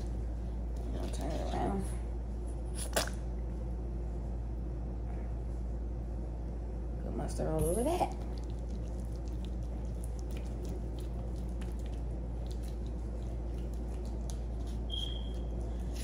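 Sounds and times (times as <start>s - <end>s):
steady low hum: 0.0s - 16.0s
faint wet squishing: 8.0s - 16.0s.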